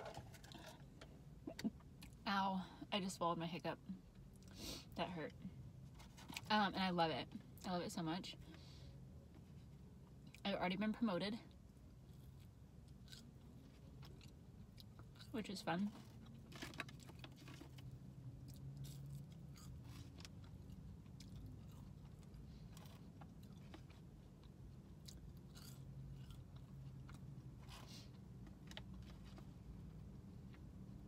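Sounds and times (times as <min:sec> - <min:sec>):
low steady hum: 0:00.0 - 0:31.0
quiet chewing of fries: 0:04.1 - 0:05.0, 0:09.3 - 0:10.4, 0:11.5 - 0:30.8.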